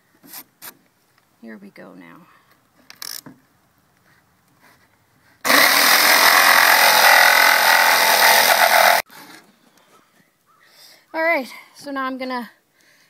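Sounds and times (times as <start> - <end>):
electric jigsaw cutting wood: 5.5 - 9.0.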